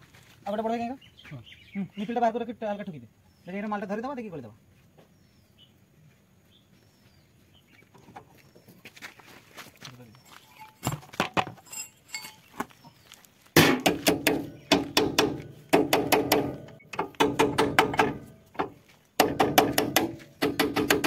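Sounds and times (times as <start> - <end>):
hammer striking steel: 13.6 - 21.0.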